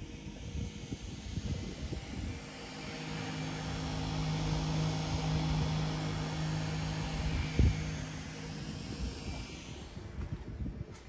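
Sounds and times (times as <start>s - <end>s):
fan humming: 0.0s - 10.9s.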